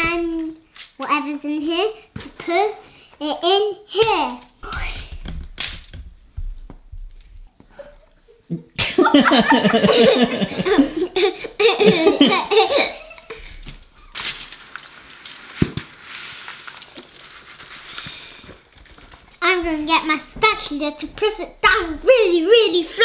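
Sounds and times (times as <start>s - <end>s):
child giggling: 8.8s - 13.5s
wooden spoon scraping granola: 14.3s - 19.4s.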